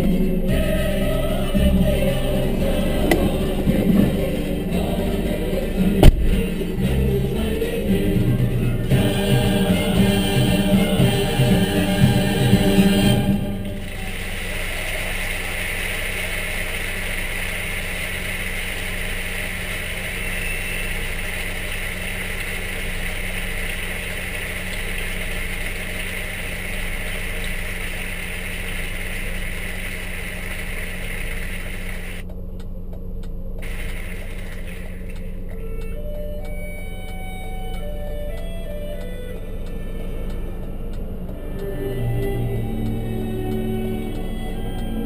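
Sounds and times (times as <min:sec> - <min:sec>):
car engine drone: 0:00.0 - 0:45.0
road and wind hiss: 0:13.7 - 0:32.2, 0:33.6 - 0:35.9.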